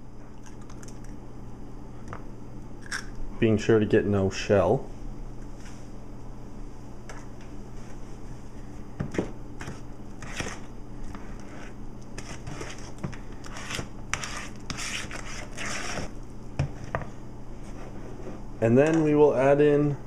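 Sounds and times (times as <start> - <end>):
steady low hum: 0.0 - 20.0
wooden spoon scraping in bowl: 9.6 - 16.9.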